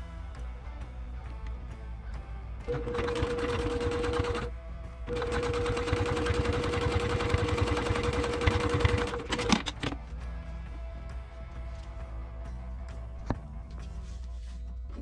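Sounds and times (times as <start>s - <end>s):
sewing machine running: 2.6s - 4.5s, 5.1s - 9.7s.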